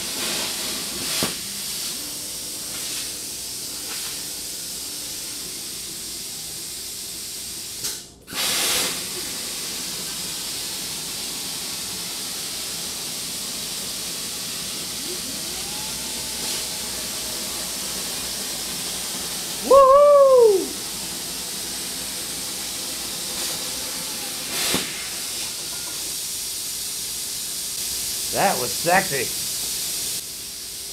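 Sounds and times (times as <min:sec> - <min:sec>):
plasma cutter arc hissing: 0:00.0 - 0:30.9
drive motors whining: 0:14.8 - 0:18.8.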